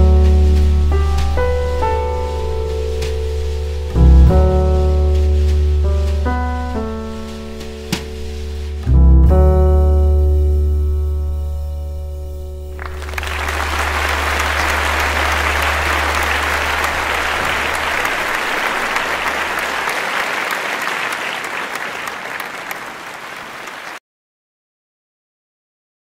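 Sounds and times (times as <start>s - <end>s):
jazz piano trio chord: 0.0s - 14.0s
audience applauding: 12.8s - 24.0s.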